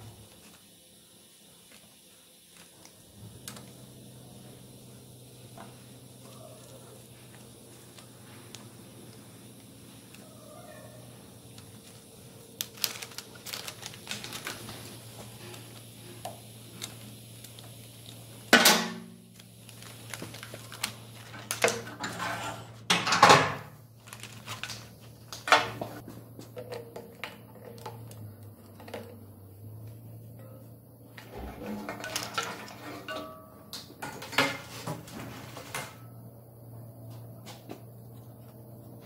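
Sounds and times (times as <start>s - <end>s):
steel tools clinking: 31.6s - 34.7s.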